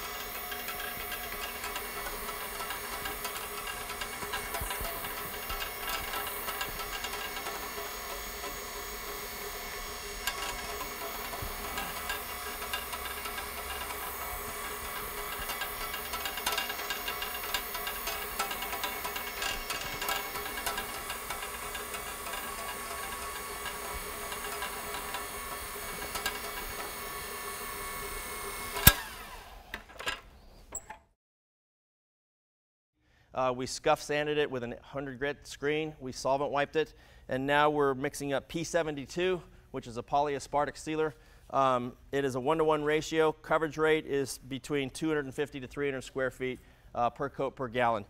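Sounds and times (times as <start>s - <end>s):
rotary floor buffer sanding: 0.0s - 29.7s.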